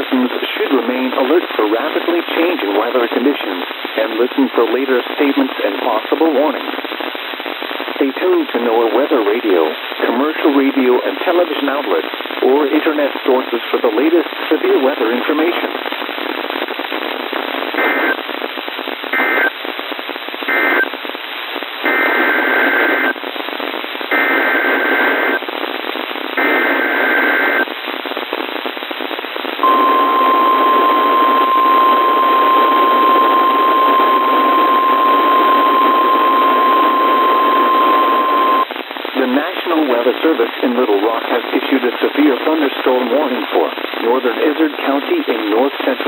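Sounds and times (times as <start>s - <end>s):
radio channel hiss: 0.0s - 46.0s
warning alarm tone: 29.6s - 38.7s.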